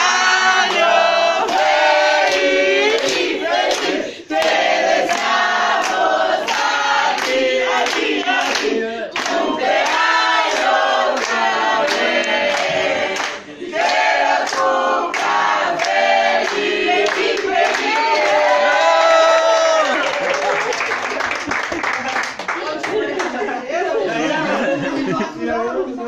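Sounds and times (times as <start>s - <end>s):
group of voices singing: 0.0s - 19.0s.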